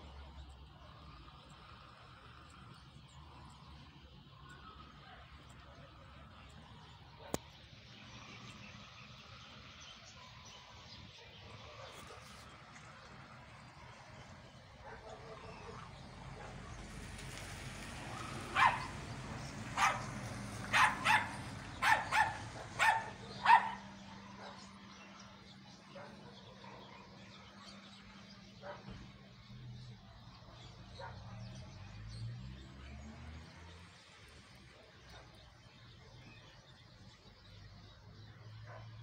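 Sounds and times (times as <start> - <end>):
dog barking: 14.8 - 16.6, 18.5 - 19.0, 19.8 - 24.7, 25.9 - 27.2, 28.6 - 29.0, 31.0 - 31.5, 38.6 - 39.0.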